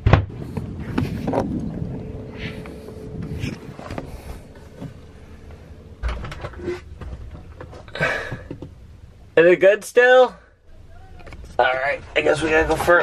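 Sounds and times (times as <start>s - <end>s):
low thump: 0.0s - 8.8s
faint steady hum: 0.1s - 13.0s.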